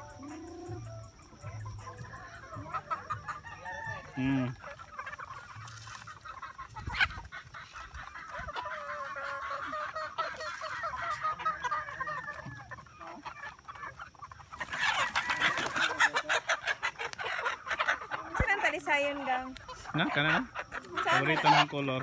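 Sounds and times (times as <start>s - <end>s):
chickens clucking and peeping: 0.0s - 22.0s
chicken squawking: 2.2s - 22.0s
wings flapping: 14.6s - 16.2s.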